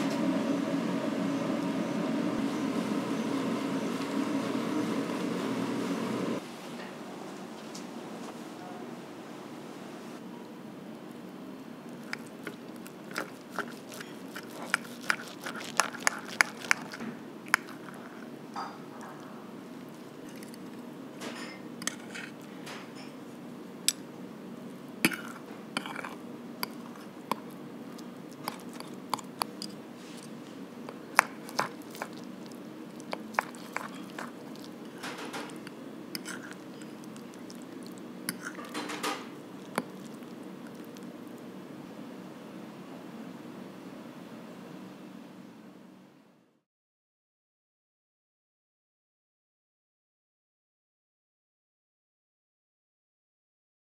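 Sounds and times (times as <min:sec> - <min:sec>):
low background hum: 0:00.0 - 0:46.6
cutlery clinking on a plate: 0:38.3 - 0:39.3.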